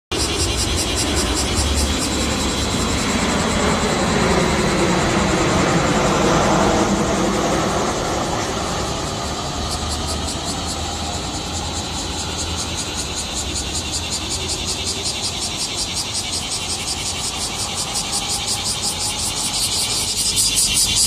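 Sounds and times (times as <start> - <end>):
broad rushing noise: 0.1 - 21.0
cicadas singing: 0.1 - 21.0.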